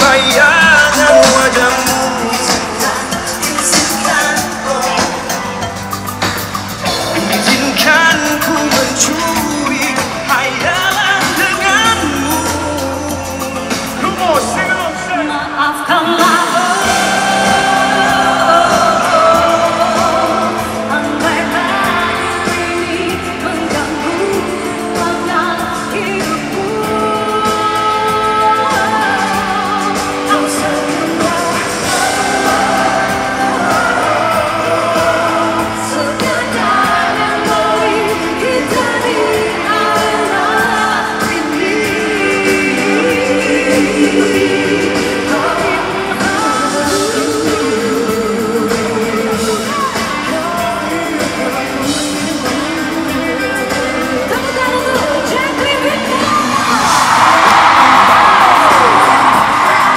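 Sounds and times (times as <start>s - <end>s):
band and strings playing: 0.0s - 15.4s, 16.2s - 59.9s
woman singing: 15.2s - 59.9s.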